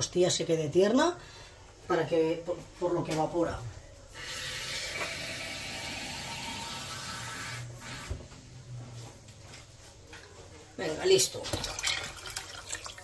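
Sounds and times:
water pouring into a pot: 11.4 - 13.0.

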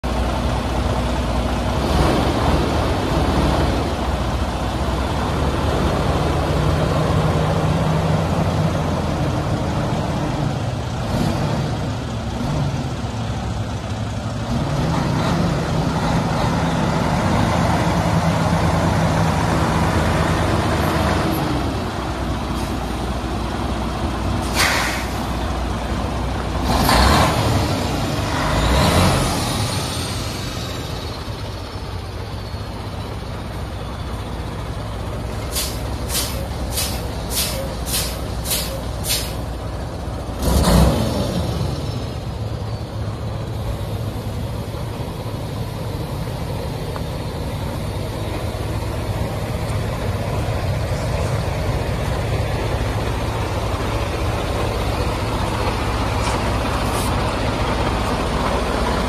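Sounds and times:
truck diesel engine idling: 0.0 - 40.5, 41.2 - 59.0
short sharp air hisses: 24.4 - 25.3, 35.5 - 39.5.

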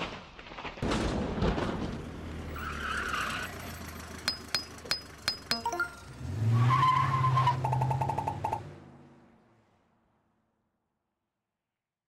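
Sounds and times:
vehicle engine pulling up: 1.6 - 9.3.

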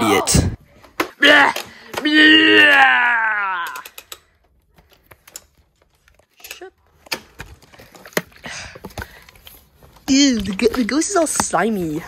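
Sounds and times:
plastic toy figures clicking: 3.5 - 7.3.

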